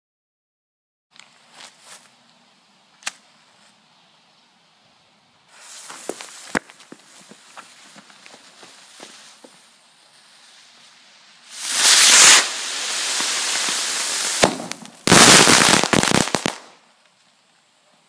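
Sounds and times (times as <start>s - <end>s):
firework rushing hiss: 5.5s - 16.9s
firework sharp crack: 11.3s - 16.9s.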